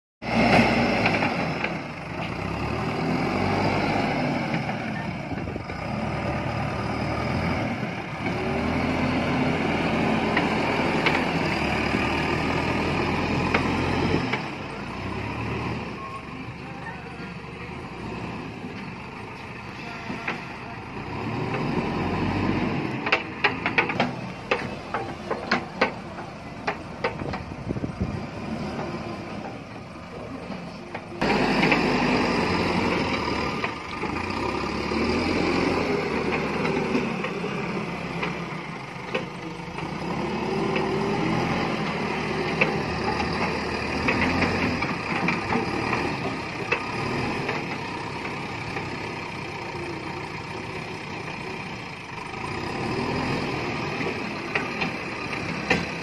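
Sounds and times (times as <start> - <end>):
diesel engine running under load: 0.2 - 56.0
sharp knocks and clatter: 23.0 - 27.6, 54.5 - 56.0.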